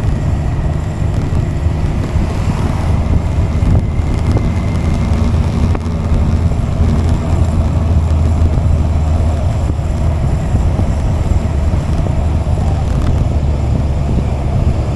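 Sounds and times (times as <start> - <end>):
motorcycle engine cruising: 0.0 - 14.9
wind rushing over microphone: 0.0 - 14.9.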